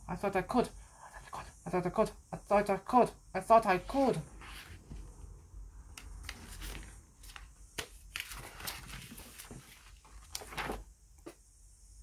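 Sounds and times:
book pages flipping: 4.4s - 5.3s, 5.9s - 11.4s.

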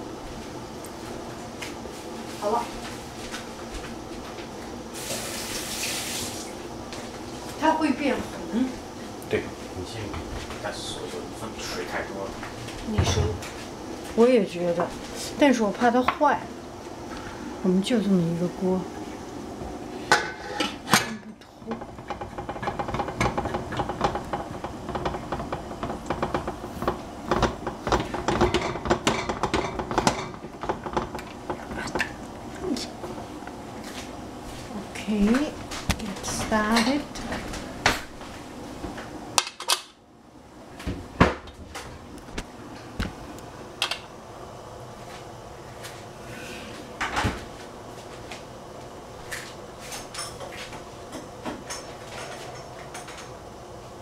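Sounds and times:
knocks and clunks in kitchen: 12.4s - 13.6s, 19.6s - 32.2s, 40.8s - 44.1s, 47.0s - 47.6s, 49.3s - 53.4s.

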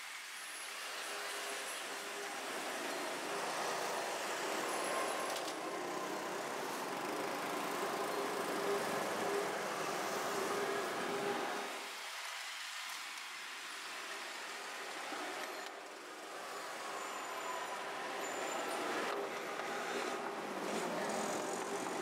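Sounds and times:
road traffic passing: 14.0s - 22.0s.

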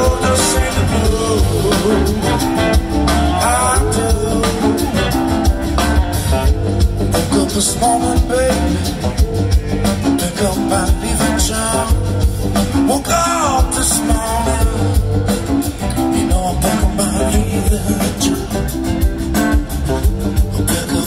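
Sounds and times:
live blues rock band: 0.0s - 21.0s
man singing: 0.0s - 21.0s.

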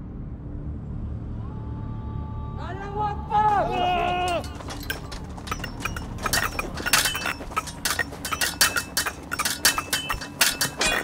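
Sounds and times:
wooden sticks clacking: 3.7s - 11.0s.

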